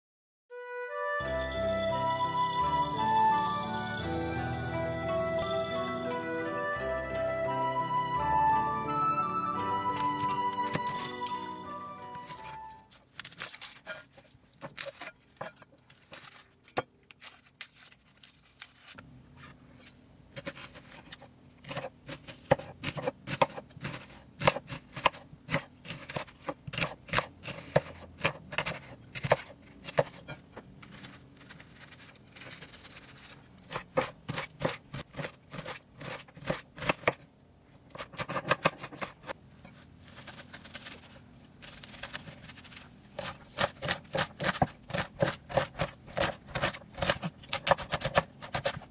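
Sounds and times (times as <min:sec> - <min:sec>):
knife slicing onion: 0:09.9 - 0:11.5, 0:12.1 - 0:16.4, 0:20.3 - 0:37.3, 0:37.9 - 0:39.4, 0:40.0 - 0:48.9.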